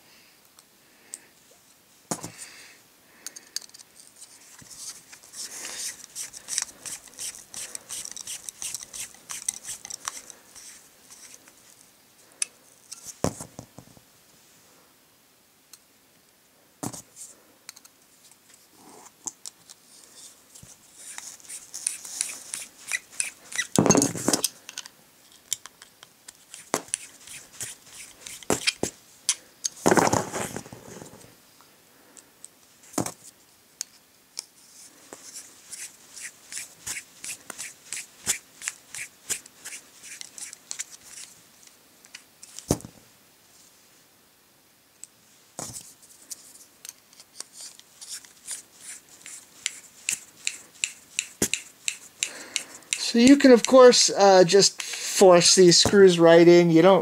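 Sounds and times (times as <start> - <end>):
plastic housing handling rubs: 3.6 - 11.6, 18.8 - 31.2, 32.9 - 41.4, 45.6 - 54.0.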